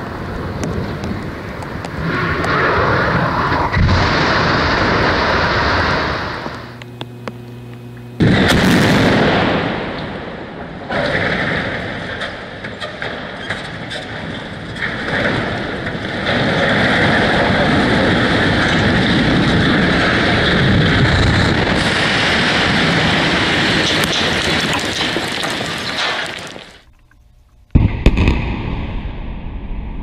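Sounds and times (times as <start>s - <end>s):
chimney collapse rumble: 8.2s - 26.9s
debris cracking and clattering: 10.8s - 27.3s.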